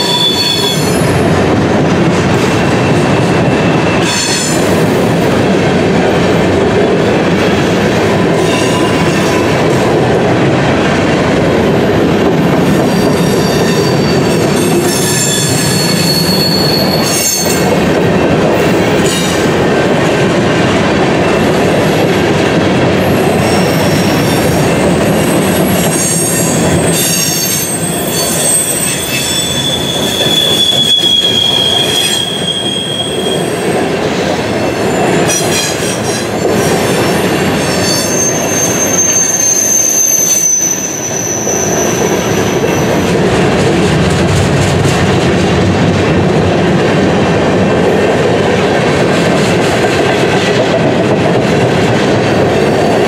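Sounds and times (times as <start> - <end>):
high-pitched wheel squeals: 0.0 - 1.0, 12.9 - 17.7, 25.2 - 33.7, 37.6 - 43.1
train wheels rumbling on rail: 0.0 - 53.0.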